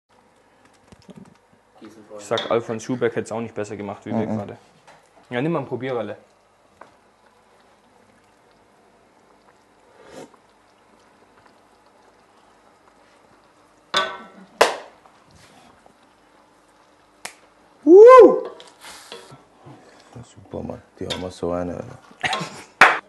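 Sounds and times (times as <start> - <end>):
faint steady hum: 0.1 - 22.9
man's short vocal exclamation: 17.9 - 18.4.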